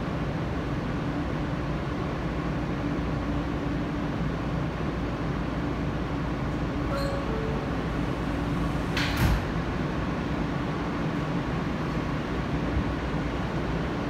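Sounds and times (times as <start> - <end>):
subway car hum: 0.0 - 14.0
two-tone door chime: 6.8 - 9.0
sliding doors shutting with thud: 6.9 - 9.8.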